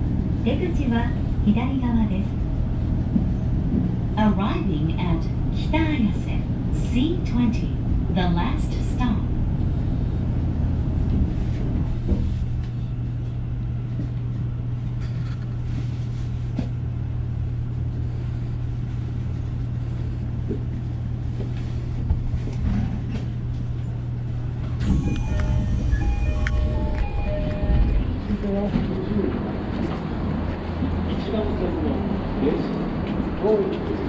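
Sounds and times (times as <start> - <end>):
train cab hum and rumble: 0.0 - 34.0
electronic chime tones: 24.8 - 28.2.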